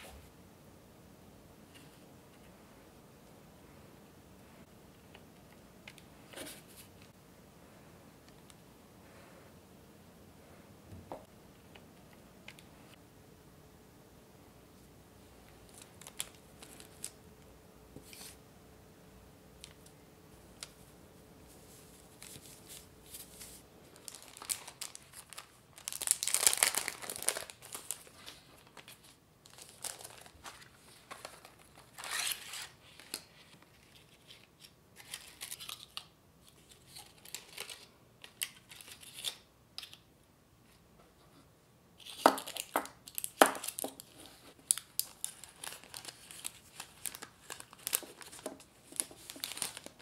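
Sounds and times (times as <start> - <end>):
plastic wrapping crinkling: 15.6 - 17.2, 21.7 - 34.3, 42.0 - 50.0.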